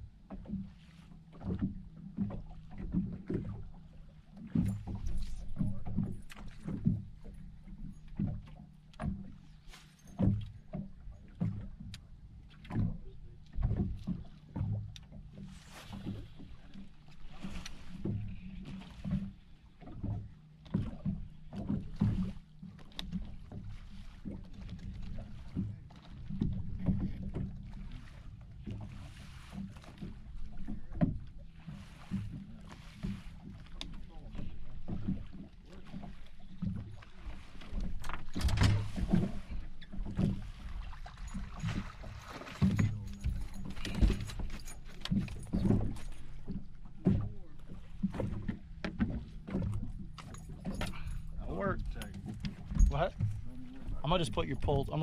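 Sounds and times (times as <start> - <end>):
waves slapping boat hull: 0.0 - 55.0.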